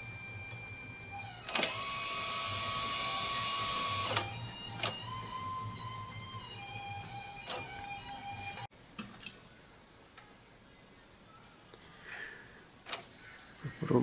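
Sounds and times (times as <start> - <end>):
motor whirring: 0.5 - 8.7
cassette mechanism clicking: 3.1 - 5.1.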